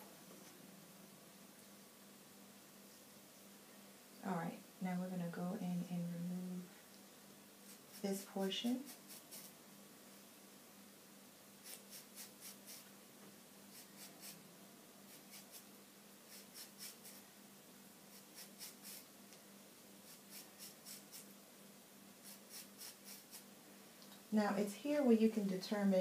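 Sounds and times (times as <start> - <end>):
razor comb scratching hair: 7.7 - 9.5, 11.6 - 12.9, 13.7 - 14.4, 15.1 - 15.7, 16.3 - 17.2, 18.1 - 19.1, 20.0 - 21.3, 22.2 - 23.5.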